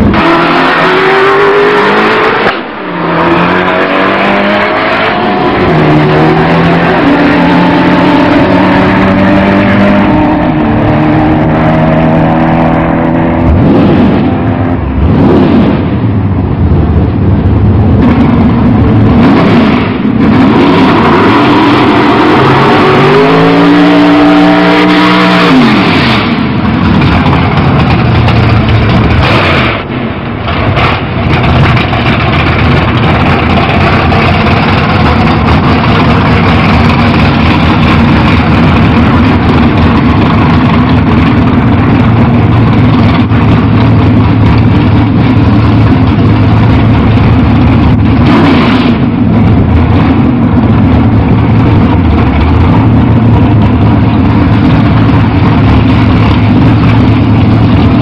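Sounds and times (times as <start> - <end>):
race car engine rough idle: 26.3 - 48.3, 48.9 - 58.0.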